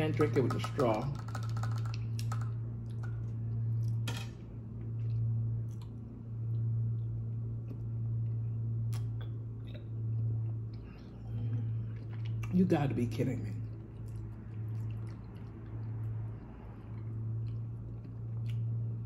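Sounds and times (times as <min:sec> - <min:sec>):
low electrical hum: 0:00.0 - 0:19.0
faint chewing: 0:04.8 - 0:06.7, 0:13.6 - 0:19.0.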